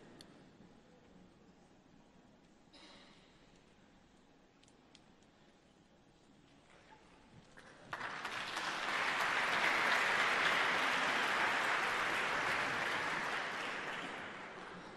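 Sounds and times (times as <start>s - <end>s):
large audience clapping: 7.6s - 14.9s.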